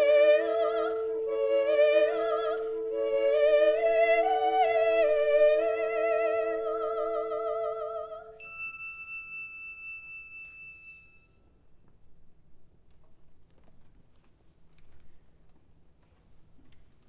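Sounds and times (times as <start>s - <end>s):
bright bell ding: 8.4s - 11.4s.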